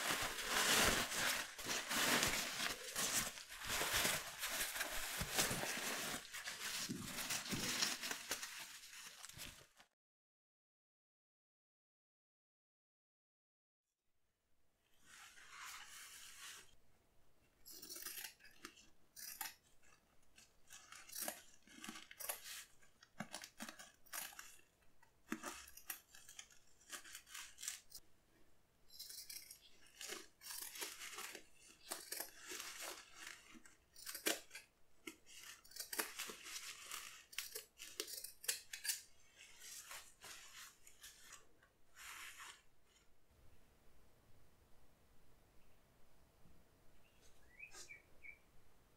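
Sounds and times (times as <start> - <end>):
crinkly rustling of material: 0.0 - 9.9, 19.6 - 28.0, 29.5 - 43.1.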